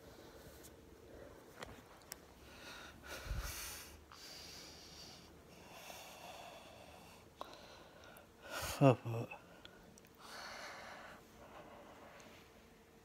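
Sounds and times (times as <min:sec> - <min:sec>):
person breathing close: 0:02.3 - 0:08.8, 0:09.4 - 0:12.6.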